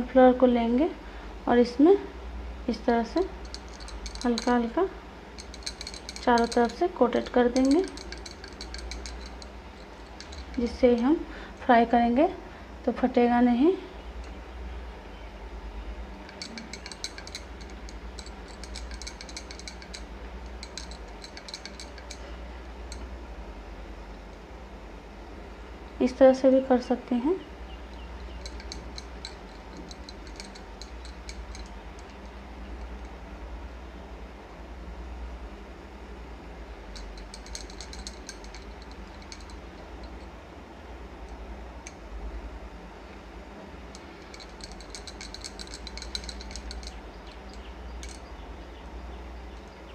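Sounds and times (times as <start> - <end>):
steady low hum: 0.0 - 49.9
light clinks in a bowl: 3.2 - 4.8, 5.4 - 11.3, 16.2 - 23.1, 27.7 - 33.2, 36.9 - 40.4, 43.8 - 48.4
light clicks and taps on steel plate: 3.4 - 4.6, 5.4 - 11.1, 16.3 - 22.3, 27.9 - 33.1, 36.9 - 40.3, 43.9 - 48.3.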